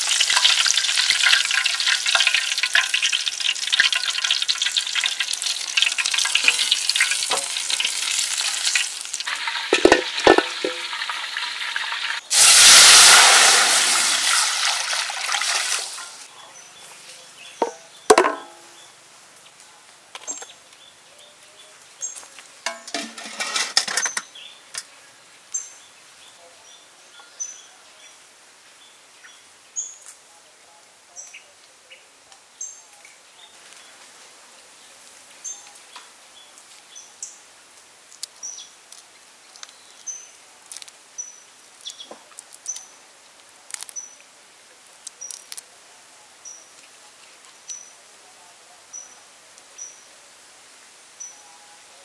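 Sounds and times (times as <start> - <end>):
metal bowl clattering on wok: 9.4 - 11.0, 17.6 - 18.7, 22.7 - 24.2
shrimp shells being peeled: 40.6 - 41.0, 41.8 - 42.8, 43.4 - 44.0, 44.8 - 45.7.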